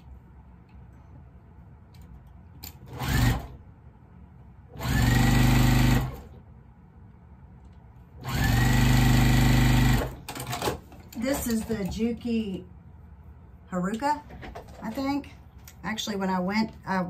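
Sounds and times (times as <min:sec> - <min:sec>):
sewing machine stitching: 0:02.8 - 0:03.6, 0:04.8 - 0:06.3, 0:08.2 - 0:11.4.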